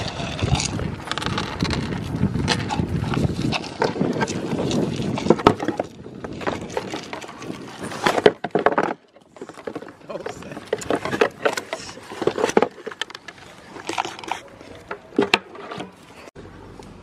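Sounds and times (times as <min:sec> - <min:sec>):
goats crunching and munching: 0:00.0 - 0:16.3.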